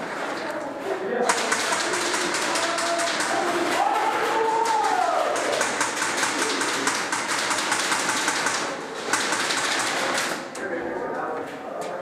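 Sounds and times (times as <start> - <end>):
airsoft guns firing: 1.3 - 10.5
loud crack: 1.3 - 10.5.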